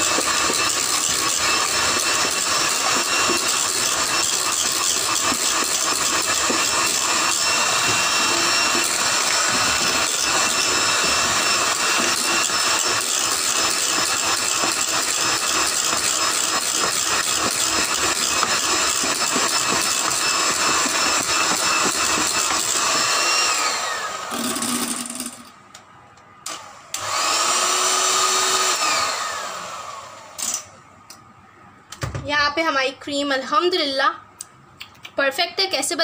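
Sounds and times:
electric hand mixer whipping cream: 0:00.0 - 0:25.4, 0:26.5 - 0:30.4.

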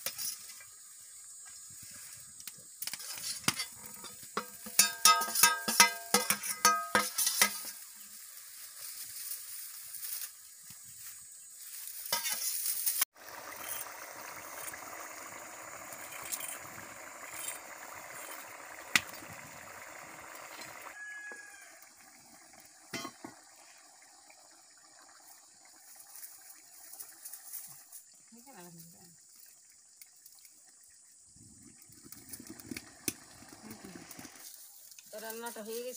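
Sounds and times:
metal lid clinking on pot: 0:03.5 - 0:07.7, 0:22.9 - 0:23.3
curry bubbling: 0:13.1 - 0:34.5.

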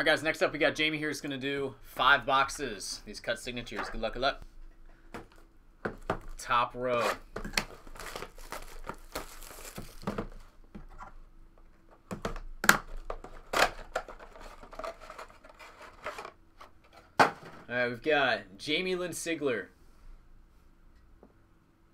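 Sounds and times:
plastic wrap crinkling and tearing: 0:07.5 - 0:10.4.

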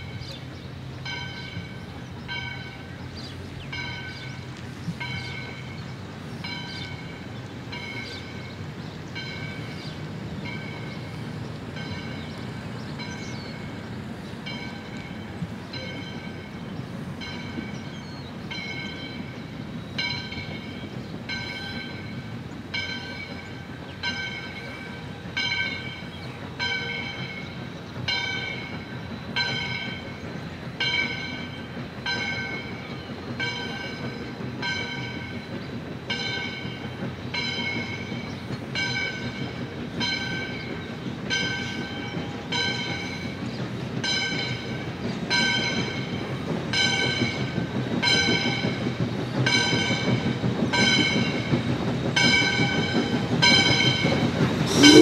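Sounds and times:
low rumble of moving train: 0:00.0 - 0:55.0
locomotive bell ringing: 0:01.0 - 0:04.4, 0:05.0 - 0:09.8, 0:10.4 - 0:11.1, 0:11.7 - 0:12.4, 0:13.0 - 0:13.8, 0:14.4 - 0:30.2.

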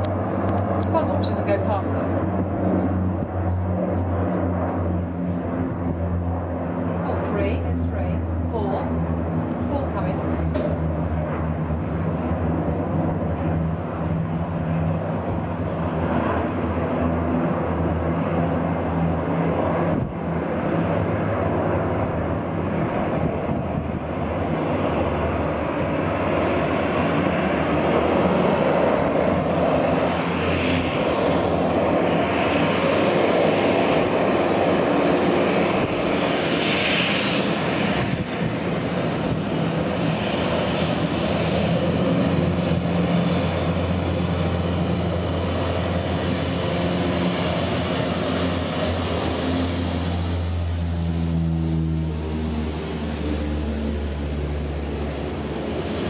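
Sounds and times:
propeller engines droning: 0:00.0 - 0:56.0.

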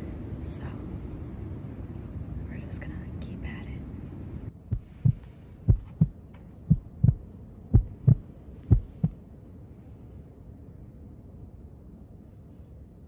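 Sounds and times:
heartbeat double thumps: 0:04.7 - 0:09.2.

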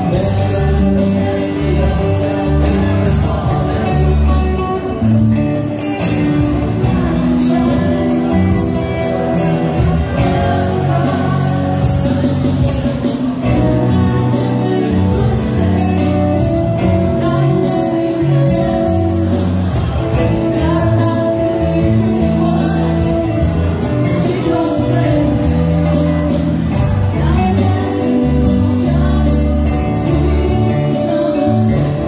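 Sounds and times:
person singing: 0:00.0 - 0:32.0
rock band playing: 0:00.0 - 0:32.0.

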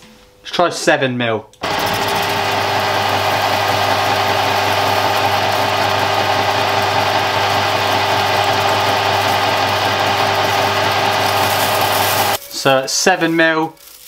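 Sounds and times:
lathe cutting metal: 0:01.6 - 0:12.4
metal lathe humming: 0:01.6 - 0:12.4.

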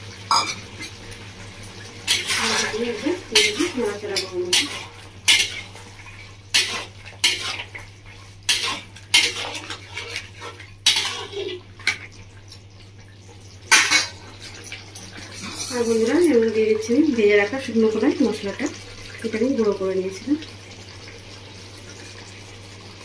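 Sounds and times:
metal spatula scraping metal pan: 0:02.1 - 0:05.9, 0:06.5 - 0:07.9, 0:08.5 - 0:11.6, 0:15.4 - 0:16.2.

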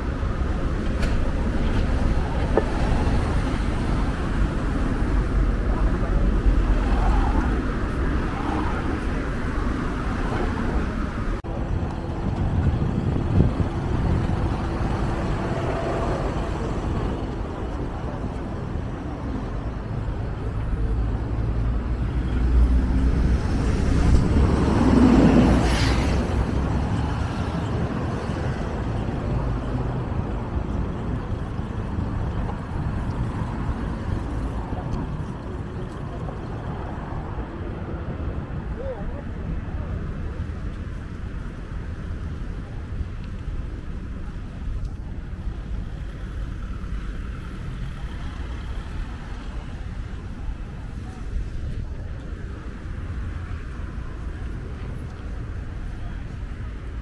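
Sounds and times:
bus passing close by: 0:00.0 - 0:38.9
cars passing: 0:00.0 - 0:57.0
low traffic rumble: 0:00.0 - 0:57.0.

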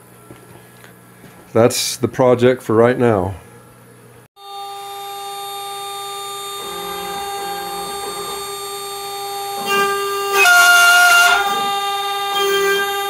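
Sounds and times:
router spindle whining: 0:04.4 - 0:13.0.

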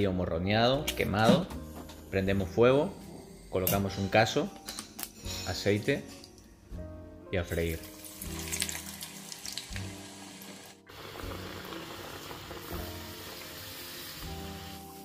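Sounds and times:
background music: 0:00.0 - 0:15.0
oil sizzling while deep-frying: 0:07.7 - 0:15.0.

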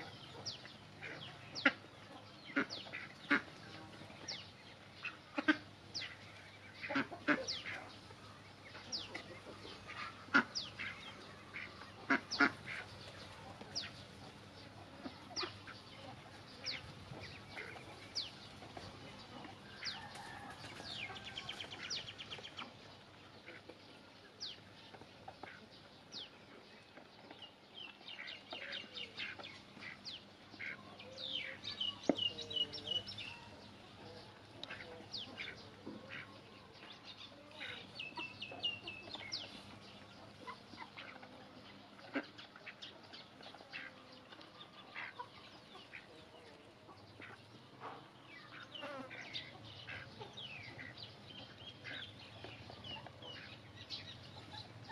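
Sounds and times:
chickens clucking: 0:00.0 - 0:54.9.

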